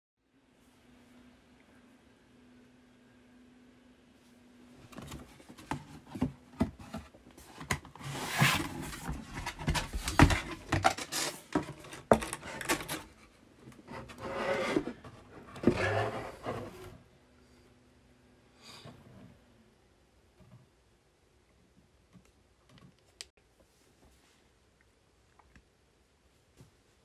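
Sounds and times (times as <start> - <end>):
cardboard box flaps scraping: 4.9 - 12.9, 13.9 - 17.0.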